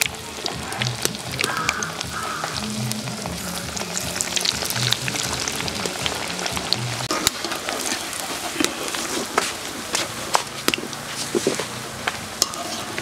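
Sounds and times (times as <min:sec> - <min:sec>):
food deep-frying in hot oil: 0:00.0 - 0:13.0.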